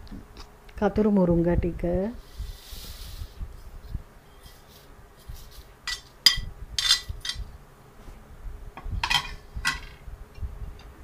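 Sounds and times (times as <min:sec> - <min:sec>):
metal spoon clinking on dishes: 0:05.9 - 0:07.4.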